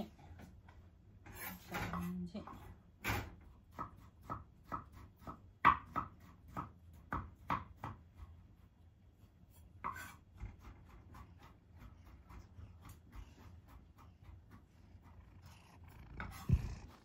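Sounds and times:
knife chopping on cutting board: 3.0s - 8.3s, 9.8s - 13.0s.

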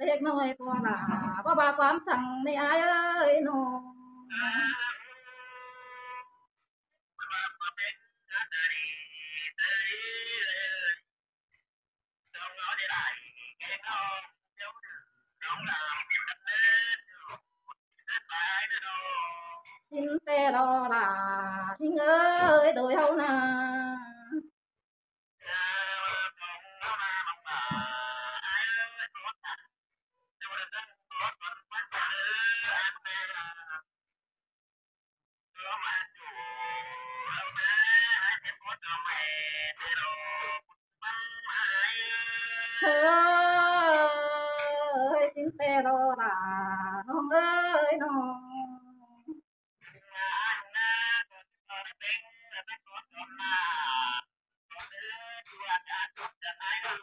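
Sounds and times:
woman singing unaccompanied: 0.0s - 4.7s, 19.9s - 24.5s, 42.8s - 49.4s.

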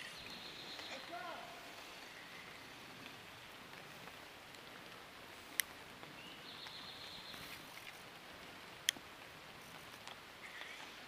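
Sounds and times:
light rain on creek: 0.0s - 11.0s.

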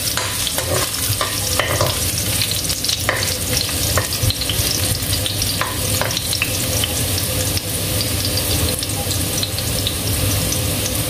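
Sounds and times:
metal spatula scraping wok: 0.0s - 2.4s
ginger sizzling in oil: 0.0s - 11.0s.

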